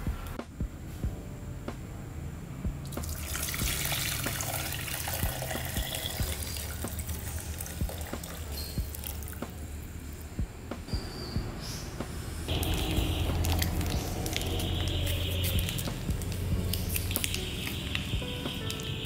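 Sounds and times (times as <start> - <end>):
syrup stream splashing: 3.0 - 9.6, 12.5 - 19.0.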